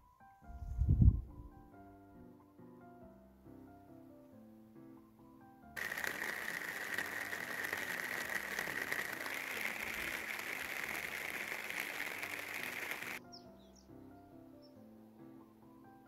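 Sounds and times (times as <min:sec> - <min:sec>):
soft piano music: 0:00.0 - 0:05.8, 0:13.2 - 0:16.0
heavy rain on wooden deck: 0:05.8 - 0:13.2.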